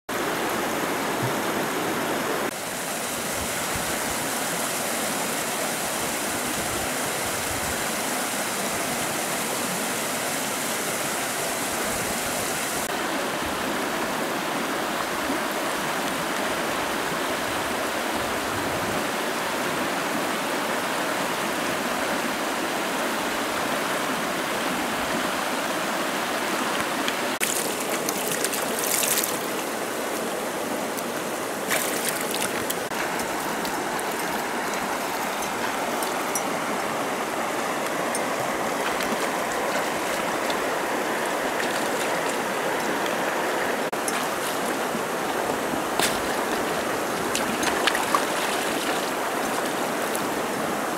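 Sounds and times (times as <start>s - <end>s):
river water rushing over rocks: 0.1s - 50.9s
water splashes: 26.6s - 50.9s.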